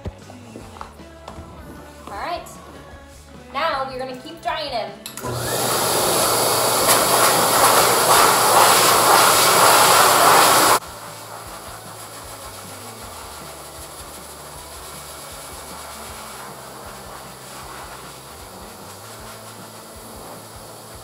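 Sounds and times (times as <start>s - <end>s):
dog dryer blowing: 5.2s - 21.0s.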